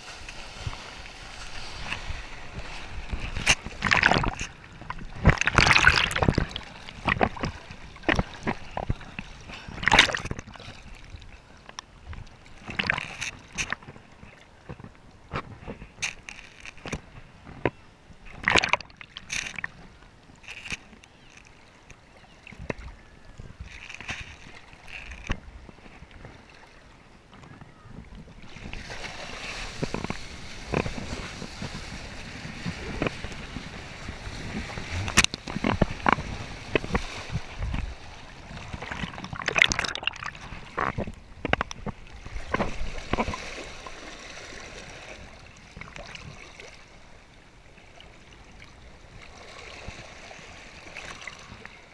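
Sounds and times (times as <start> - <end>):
water rushing under a board: 0.0 - 21.5, 28.0 - 46.9
board slapping water: 0.0 - 47.4.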